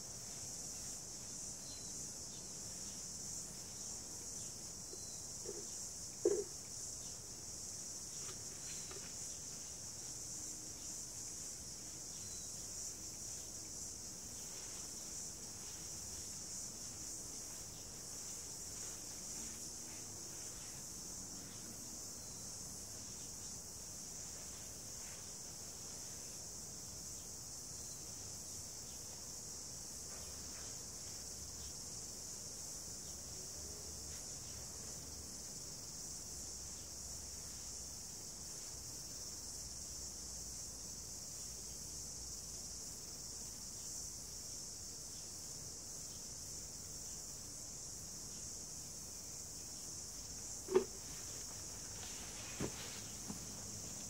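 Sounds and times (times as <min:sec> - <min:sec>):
insects chirring: 0:00.0 - 0:54.0
sharp knock: 0:50.7 - 0:51.0.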